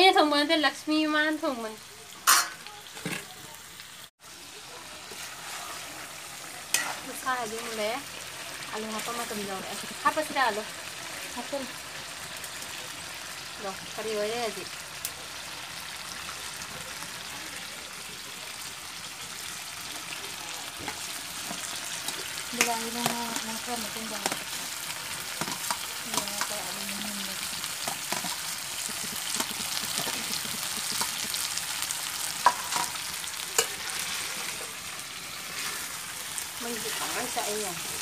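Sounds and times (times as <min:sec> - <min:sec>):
curry sizzling in a pot: 0:00.0 - 0:38.0
spoon stirring against pot: 0:06.7 - 0:07.2, 0:27.8 - 0:31.6, 0:32.4 - 0:34.2.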